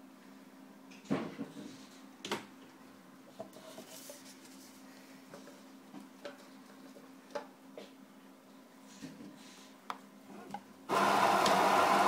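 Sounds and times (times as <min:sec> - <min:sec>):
coffee machine hum: 0:10.9 - 0:12.0.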